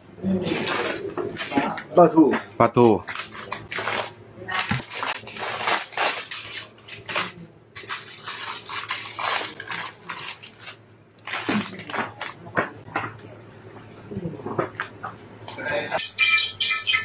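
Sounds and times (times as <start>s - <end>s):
plastic bag crinkling: 0.4s - 1.6s, 3.1s - 12.4s.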